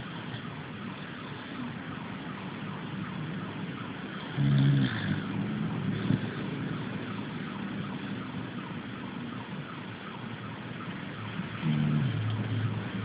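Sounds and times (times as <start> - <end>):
dog snoring: 4.4 - 5.3, 11.6 - 12.4.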